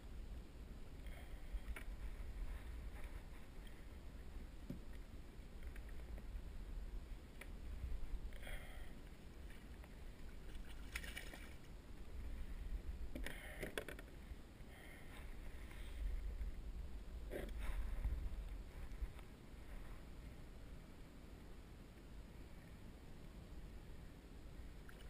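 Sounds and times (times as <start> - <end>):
low wind rumble on microphone: 0.0 - 13.4, 14.0 - 24.8
water splashing beside kayak: 9.1 - 12.6.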